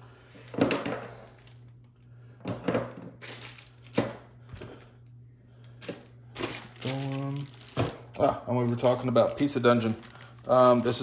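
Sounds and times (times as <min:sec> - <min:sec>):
low steady hum: 0:00.0 - 0:11.0
plastic bags crinkling: 0:03.2 - 0:04.2, 0:05.8 - 0:11.0.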